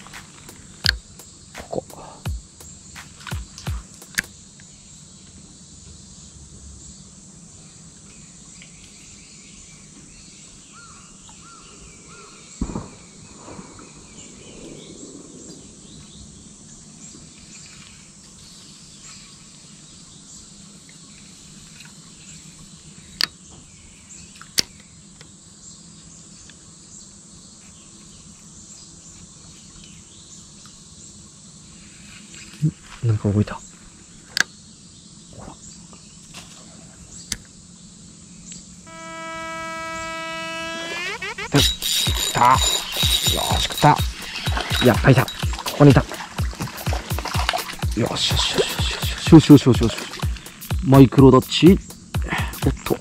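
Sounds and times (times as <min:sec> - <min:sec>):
sharp clicks: 0:00.0 - 0:04.3, 0:38.9 - 0:45.9
insects chirring: 0:00.0 - 0:36.5, 0:37.1 - 0:53.0
faint bird calls: 0:08.6 - 0:19.8, 0:38.5 - 0:46.9.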